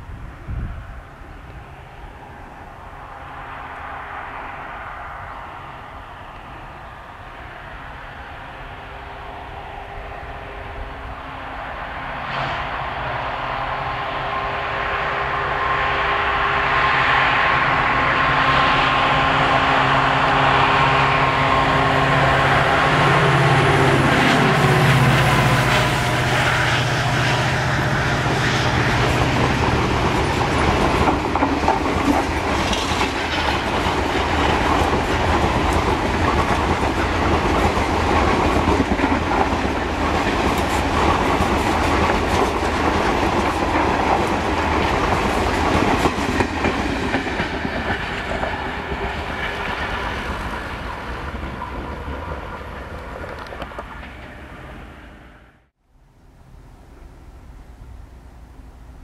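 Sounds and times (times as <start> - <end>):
diesel locomotive engine drone: 0.0 - 59.0
train wheels clickety-clack: 17.4 - 54.8.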